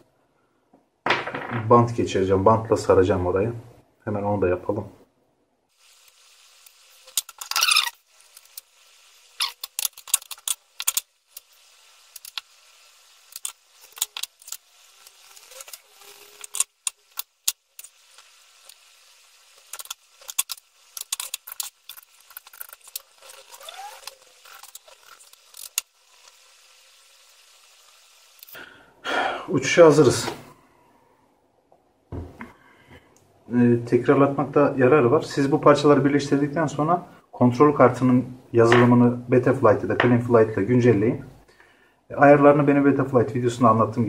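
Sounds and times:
tape ripping off roll: 7.1 - 8.6, 9.4 - 11.5, 13.3 - 18.0, 19.6 - 26.0.

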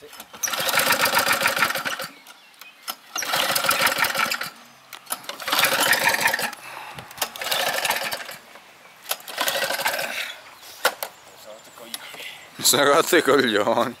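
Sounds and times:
lawn mower engine cranking: 0.1 - 2.2, 2.9 - 11.1.

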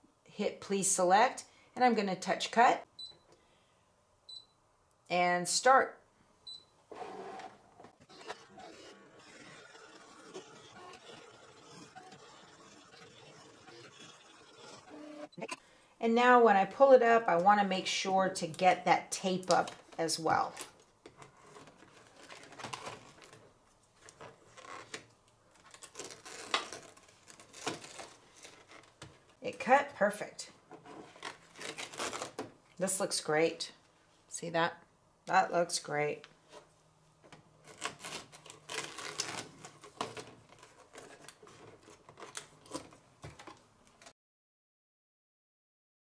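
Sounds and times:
tape peeling off a mat: 8.0 - 15.1, 24.0 - 29.3, 31.1 - 32.4, 37.6 - 44.0
fabric and tape peeled off mat: 25.6 - 29.0.

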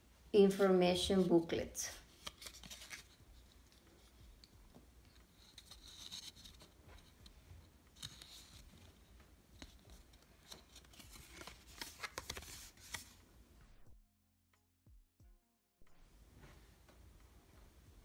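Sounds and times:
paper booklet rustling: 0.5 - 13.2.

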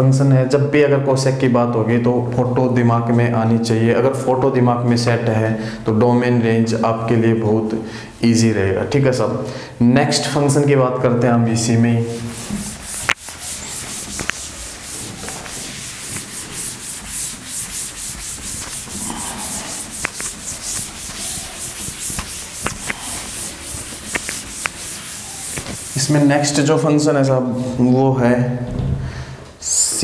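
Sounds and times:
cloth rubbing on chalkboard: 11.6 - 26.9, 27.5 - 27.9.

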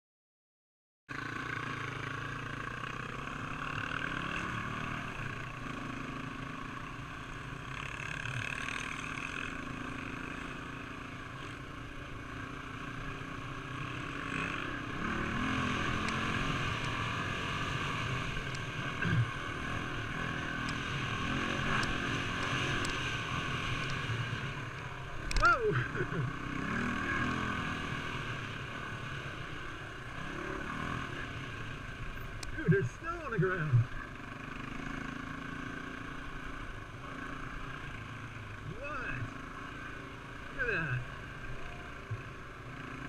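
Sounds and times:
dirt bike engine revving: 1.1 - 43.0.

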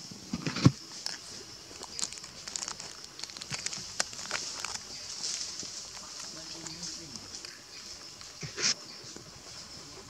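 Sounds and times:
steady high-pitched hiss: 0.0 - 10.0
rustles and steps on dry leaves: 0.9 - 8.4.

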